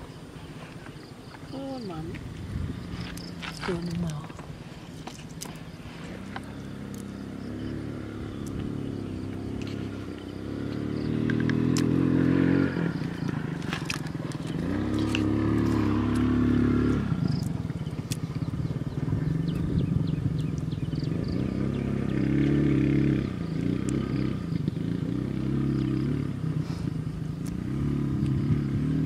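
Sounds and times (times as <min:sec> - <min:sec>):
engine revving up: 0:05.9 - 0:29.0.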